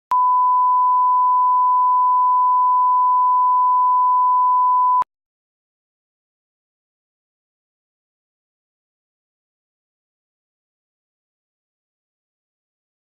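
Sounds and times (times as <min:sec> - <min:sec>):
steady pure test tone beep: 0:00.1 - 0:05.1.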